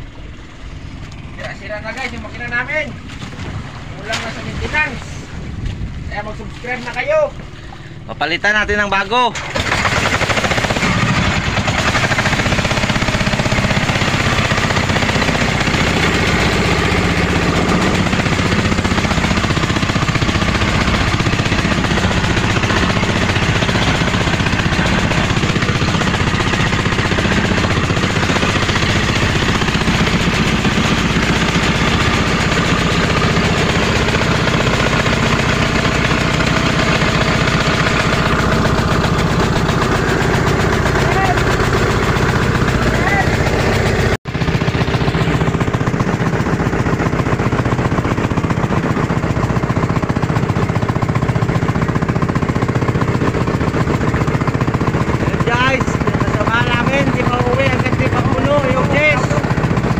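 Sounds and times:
boat engines droning: 0.0s - 59.9s.

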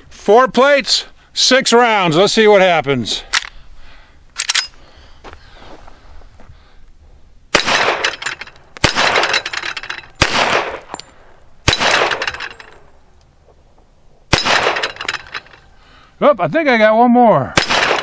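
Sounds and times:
pistol shots: 7.5s - 11.0s, 11.6s - 12.4s, 14.3s - 15.0s, 17.6s - 18.0s.

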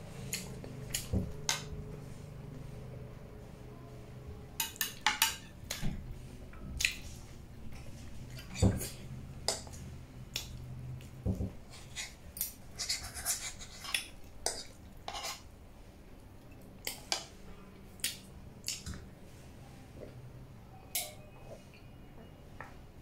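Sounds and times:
cutlery clinking on plates: 20.9s - 21.3s.

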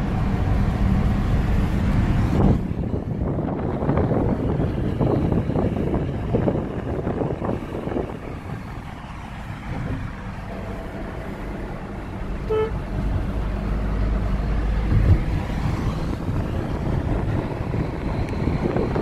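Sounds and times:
car road and engine rumble: 0.0s - 19.0s
car horn toot: 12.4s - 12.9s.

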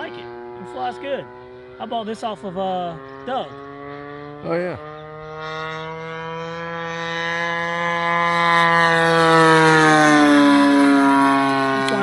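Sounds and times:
model plane engine whine: 0.0s - 12.0s.

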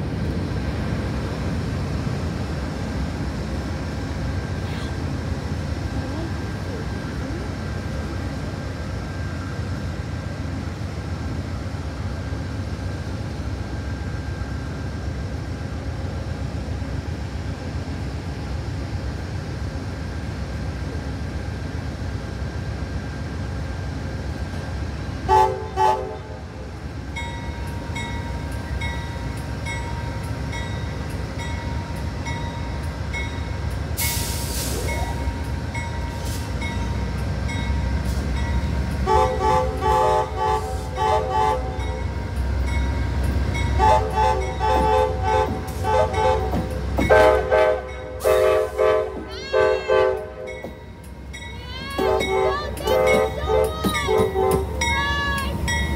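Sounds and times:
diesel engine rumble: 0.0s - 25.2s
train rolling: 0.0s - 55.9s
train horn: 25.2s - 26.5s, 39.0s - 42.0s, 43.8s - 50.6s, 51.9s - 55.5s.

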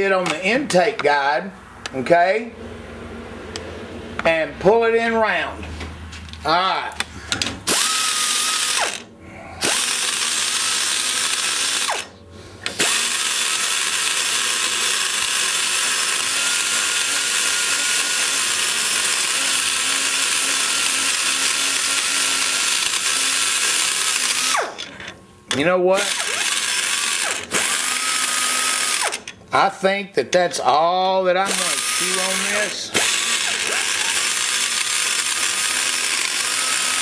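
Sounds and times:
die grinder whining: 7.4s - 29.4s, 31.4s - 37.0s.

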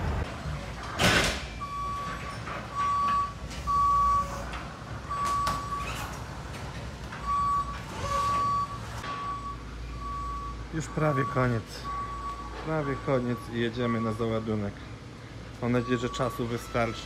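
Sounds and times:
forklift backup alarm beeping: 1.4s - 6.1s, 7.2s - 14.7s, 15.6s - 17.0s.

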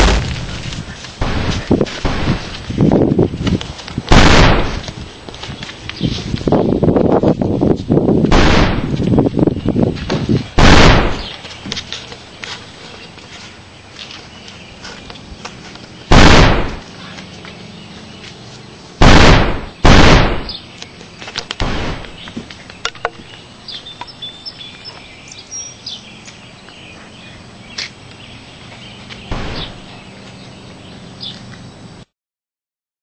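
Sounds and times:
gunshot bangs: 0.0s - 0.6s, 1.2s - 2.4s, 4.1s - 4.8s, 8.3s - 9.0s, 10.6s - 11.3s, 16.1s - 16.8s, 19.0s - 20.6s, 21.6s - 22.2s, 29.3s - 29.8s
birds chirping: 0.0s - 32.0s.

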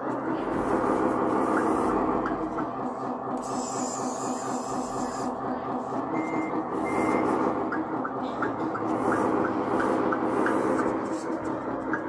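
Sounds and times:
toy diesel engine sound: 0.0s - 12.0s
reversing alarm beeps: 6.2s - 7.5s.

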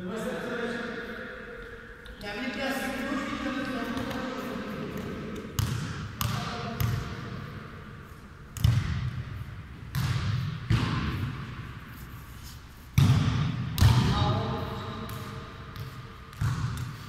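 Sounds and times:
ball thuds in echoing hall: 3.7s - 11.9s, 12.9s - 17.0s.

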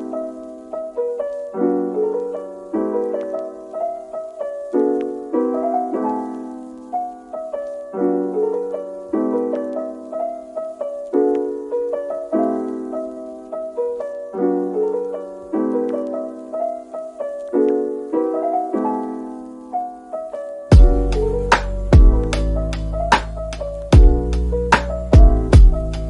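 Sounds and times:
gentle piano piece: 0.0s - 26.0s
loud drum hit with deep bass: 20.8s - 21.0s, 22.0s - 22.2s, 24.0s - 24.2s, 25.2s - 25.8s.

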